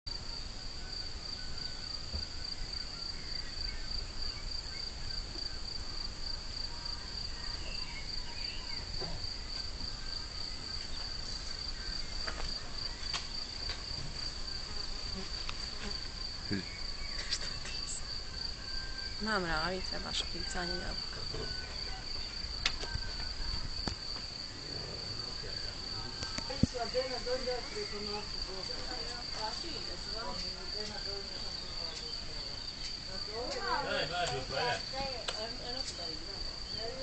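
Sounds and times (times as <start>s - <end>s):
insect trilling: 14.5s - 32.0s.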